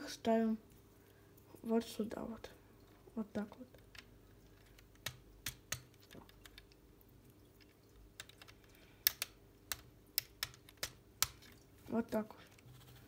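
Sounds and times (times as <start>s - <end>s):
plastic parts clicking: 7.6s - 11.6s.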